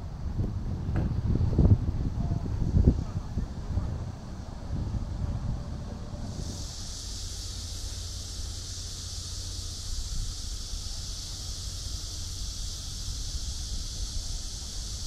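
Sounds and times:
wind buffeting microphone: 0.0s - 6.8s
high-pitched hiss: 1.0s - 15.0s.

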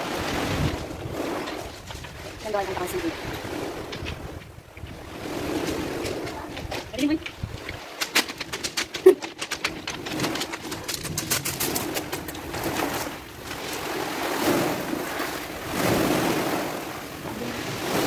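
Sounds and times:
waves washing over pebbles: 0.0s - 18.0s
stones clicking underfoot: 3.9s - 13.8s.

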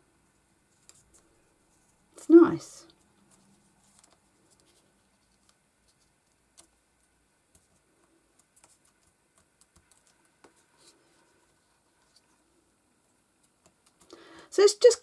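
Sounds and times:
jigsaw pieces ticking and tapping: 7.5s - 10.6s, 13.4s - 14.2s.

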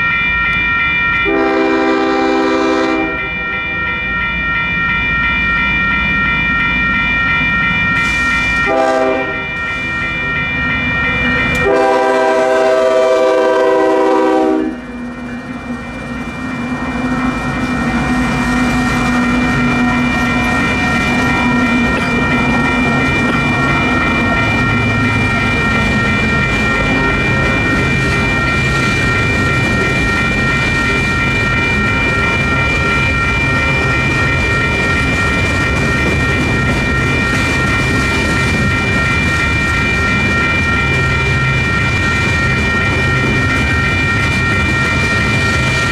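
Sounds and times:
railroad crossing bells ringing: 0.0s - 45.9s
locomotive horn blasts: 1.3s - 3.2s, 8.7s - 9.4s, 11.6s - 14.9s
train wheels clacking over rails: 11.5s - 45.9s.

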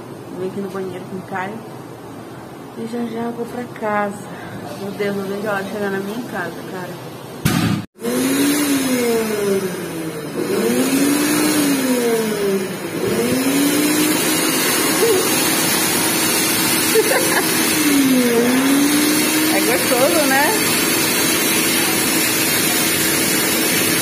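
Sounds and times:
vehicle engine: 8.0s - 24.0s.

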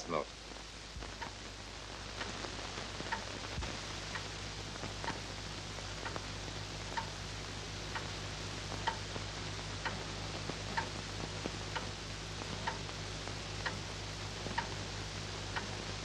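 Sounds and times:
film soundtrack hum and hiss: 0.0s - 16.0s
clock ticking: 8.8s - 9.1s, 12.6s - 12.8s, 14.5s - 14.8s.

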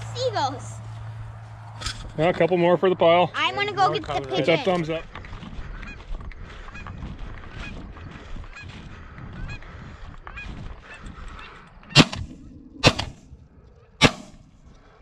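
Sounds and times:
shotgun shots: 11.9s - 13.2s, 14.0s - 14.4s.

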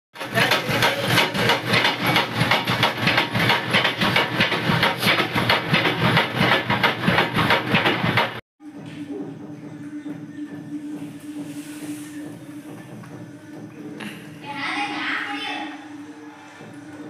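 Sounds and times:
grinding machines clattering: 0.2s - 8.4s.

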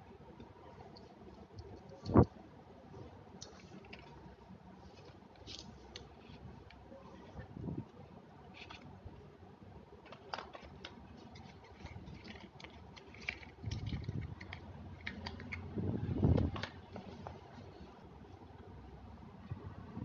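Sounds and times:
plastic items clicking and crinkling: 10.0s - 15.7s.

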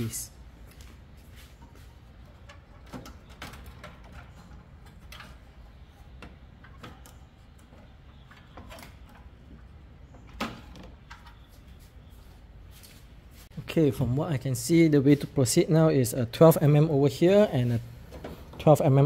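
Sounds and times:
plastic and metal parts clicking: 2.3s - 9.6s.

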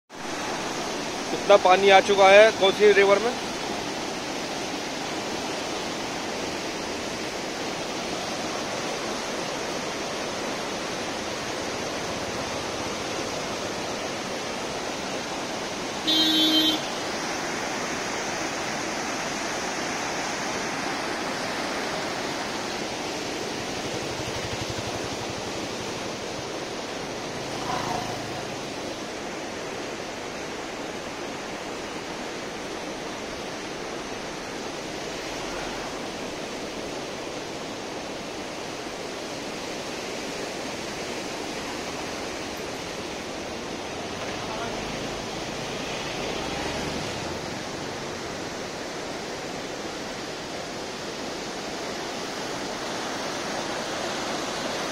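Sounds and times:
river water rushing: 0.1s - 54.9s
vehicle horn: 16.0s - 17.0s.

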